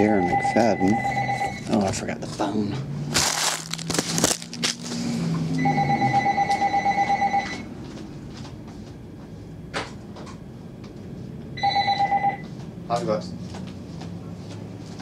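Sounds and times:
telephone ringing: 0:00.0 - 0:01.6, 0:05.6 - 0:07.7, 0:11.6 - 0:12.5.

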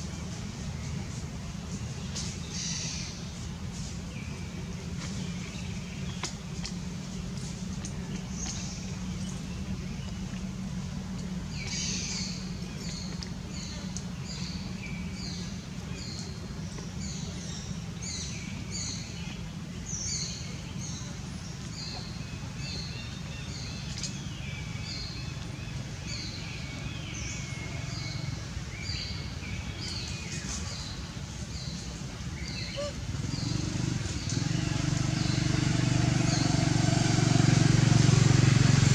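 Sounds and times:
steady low rumble: 0:00.0 - 0:34.4
small birds calling: 0:11.2 - 0:36.5.

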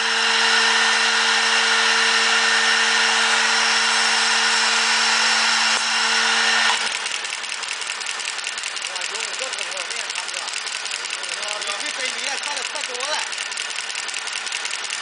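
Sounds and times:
machine motor whine: 0:00.0 - 0:15.0
rapid machine ticking: 0:06.7 - 0:15.0.

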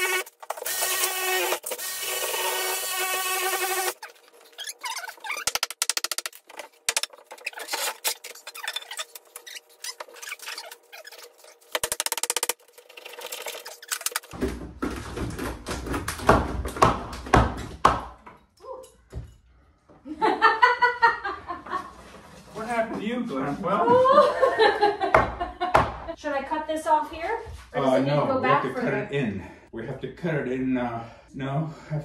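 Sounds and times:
thumps and scraping against wall: 0:03.8 - 0:18.4.

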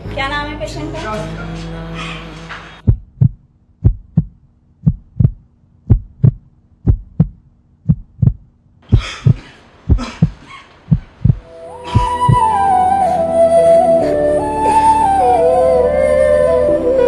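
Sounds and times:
heartbeat double thumps: 0:02.8 - 0:12.5.

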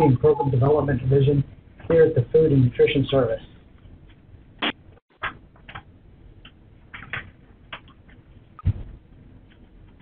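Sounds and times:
knock with low thump: 0:08.6 - 0:09.0.

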